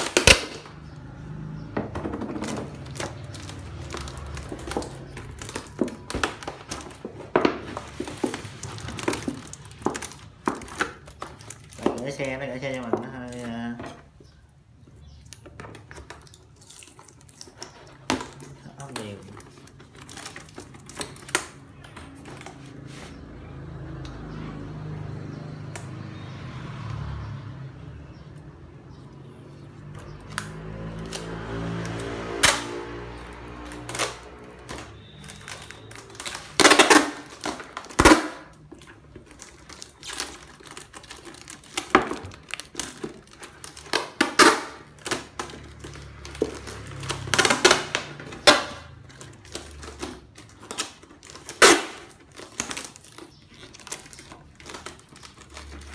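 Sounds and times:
packing tape unwinding: 0.0 - 0.8, 30.3 - 55.9
tape ripping: 0.0 - 1.0, 15.3 - 23.2, 30.2 - 55.9.

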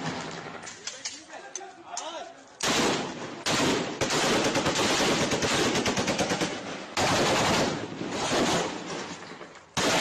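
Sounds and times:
automatic gunfire bursts: 2.6 - 8.8, 9.8 - 10.0.

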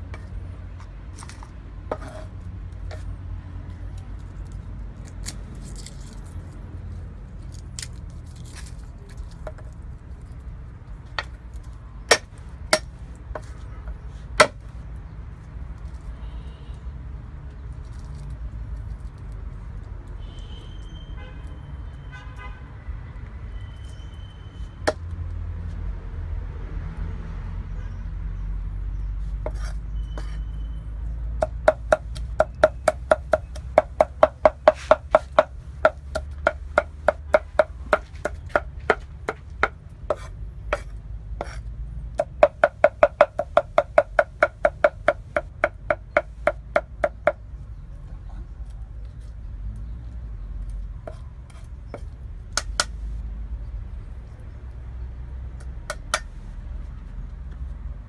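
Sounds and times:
cleaver chopping on wooden board: 12.1 - 13.5, 14.4 - 14.6, 31.4 - 47.4, 52.6 - 53.0.

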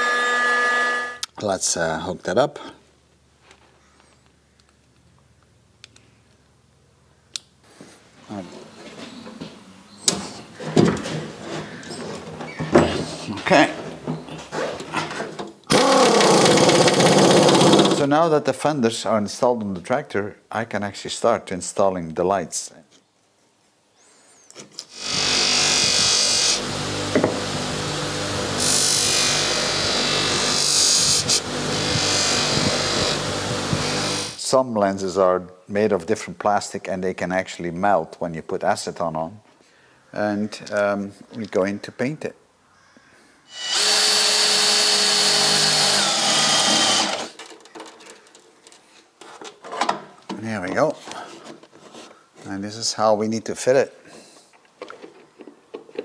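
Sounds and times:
bench polisher motor hum: 0.0 - 1.2, 25.0 - 34.4
cordless drill boring into metal: 15.7 - 18.0, 24.9 - 34.4, 43.5 - 47.4.

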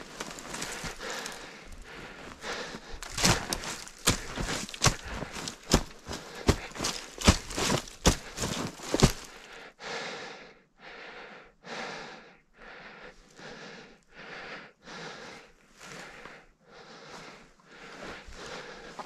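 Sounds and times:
person breathing hard: 0.0 - 19.0.

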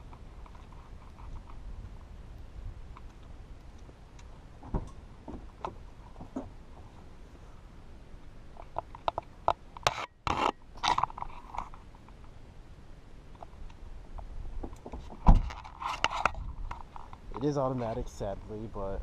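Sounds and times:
clicks knocks and scrapes: 14.6 - 17.2.

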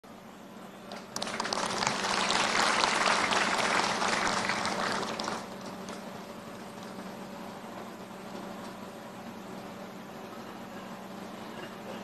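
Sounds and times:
crowd applauding: 1.0 - 6.0.

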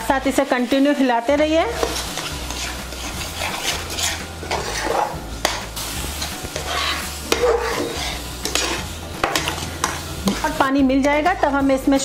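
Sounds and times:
light sizzle: 0.0 - 12.0
metal spatula scraping pan: 1.7 - 11.6
spatula clinking against pan: 6.6 - 10.4.

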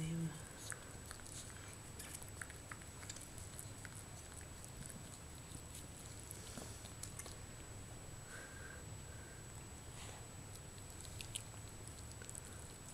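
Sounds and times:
low steady hum: 0.0 - 12.9
dog licking puppy: 0.4 - 7.4, 10.5 - 12.9.

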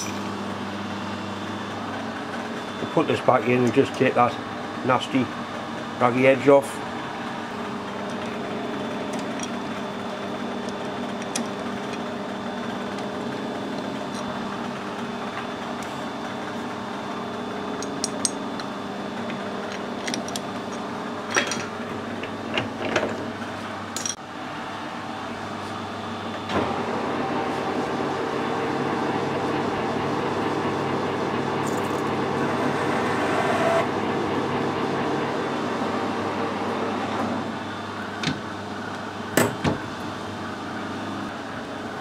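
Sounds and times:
machine hum: 0.0 - 42.0.

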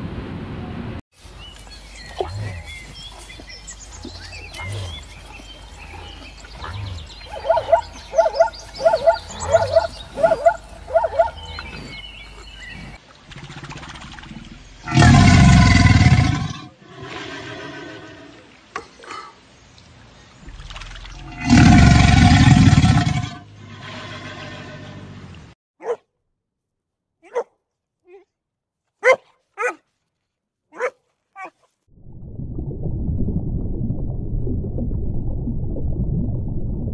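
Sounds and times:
zebra barking: 6.0 - 11.9, 25.8 - 26.0, 27.2 - 27.5, 29.0 - 29.8, 30.7 - 31.6.

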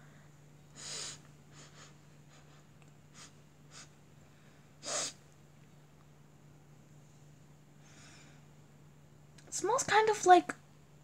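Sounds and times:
faint breaths: 0.0 - 5.2, 7.1 - 8.6
faint steady low hum: 0.0 - 11.0
person sniffing: 0.8 - 2.0, 3.1 - 4.0, 4.8 - 5.2.

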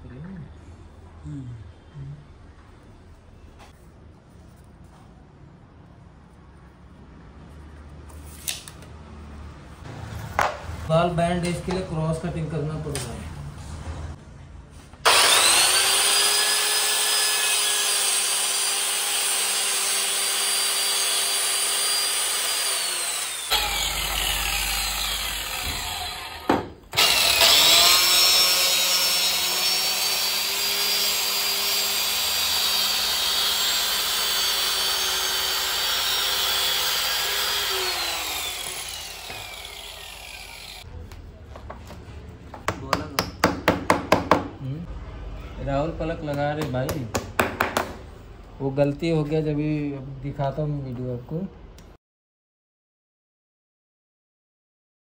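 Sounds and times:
electric power saw whining: 15.0 - 40.8.

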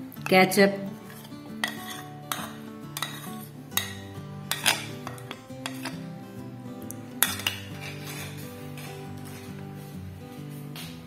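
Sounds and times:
background music: 0.0 - 11.0
metal spoon clinking on glass jar: 1.1 - 6.0, 7.2 - 9.0.

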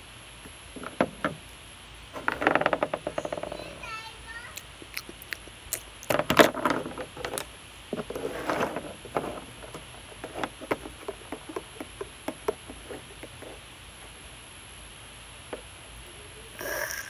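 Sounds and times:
person chewing crunchy food: 4.6 - 6.1.

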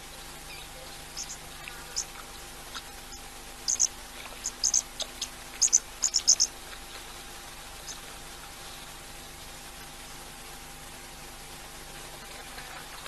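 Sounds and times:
faint steady hum: 0.0 - 13.0
small animal high-pitched chirps: 0.5 - 2.1, 3.1 - 6.5.

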